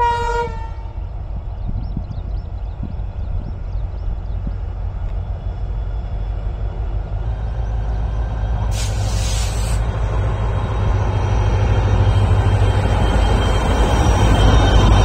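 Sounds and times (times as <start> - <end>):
diesel locomotive engine rumble: 0.0 - 15.0
short hiss: 8.7 - 9.9.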